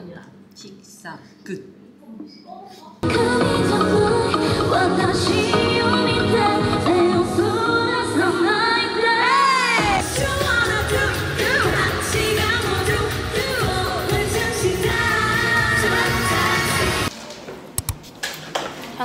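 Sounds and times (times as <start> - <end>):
woman singing into a microphone: 3.0 - 17.0
pop backing music: 3.0 - 17.1.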